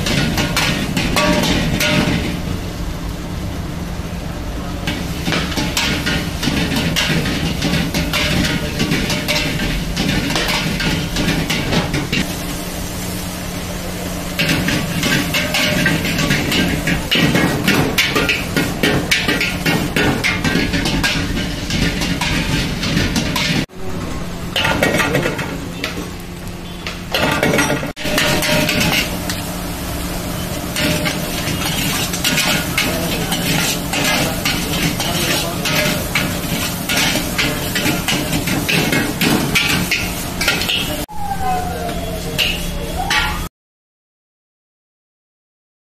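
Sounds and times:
rice sizzling in a wok: 0:00.0 - 0:41.6
gas burner roaring: 0:00.0 - 0:43.4
metal ladle scraping a wok: 0:28.0 - 0:29.4, 0:30.4 - 0:41.0, 0:42.4 - 0:43.5.

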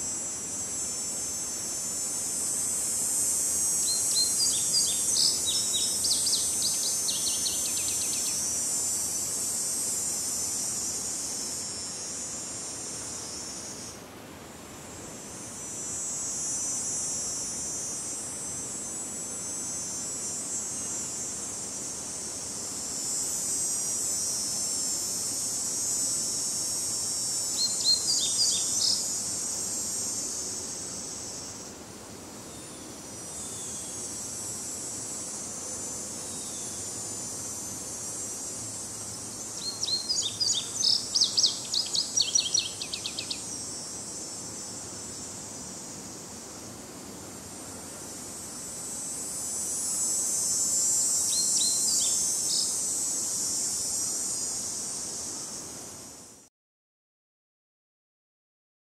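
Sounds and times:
cicadas buzzing: 0:00.0 - 0:56.5
faint breeze in trees: 0:00.0 - 0:56.5
songbird singing: 0:03.8 - 0:08.4, 0:27.5 - 0:29.2, 0:39.5 - 0:43.5, 0:51.3 - 0:52.8.

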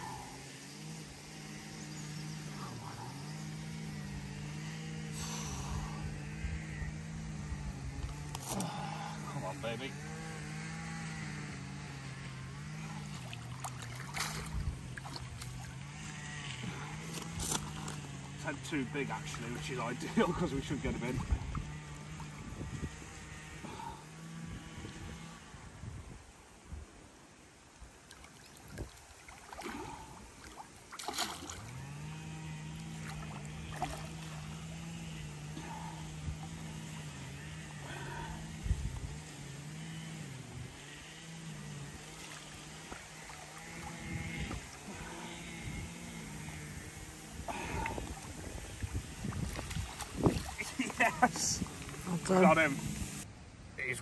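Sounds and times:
motor droning: 0:00.0 - 0:27.7, 0:28.3 - 0:53.3
fish splashing: 0:12.9 - 0:15.8, 0:28.0 - 0:34.7, 0:42.0 - 0:45.5, 0:47.4 - 0:53.2
fish splashing at surface: 0:28.1 - 0:31.7.

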